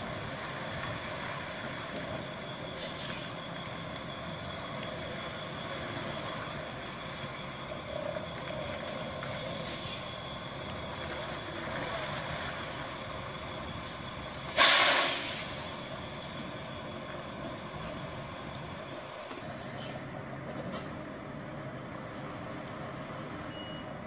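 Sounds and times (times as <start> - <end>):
truck engine running: 0.0 - 23.3
air brake hiss: 2.7 - 3.4, 13.8 - 15.8.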